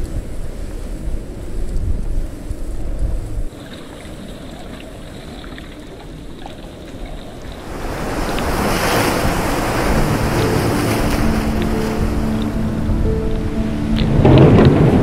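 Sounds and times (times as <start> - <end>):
wind blowing: 0.0 - 15.0
waves breaking against rocks: 3.5 - 12.6.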